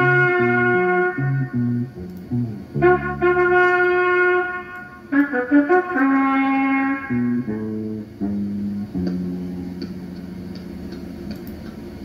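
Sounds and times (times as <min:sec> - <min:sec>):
wind instrument melody: 0:00.0 - 0:01.9, 0:02.8 - 0:08.0
bass line: 0:00.0 - 0:11.4.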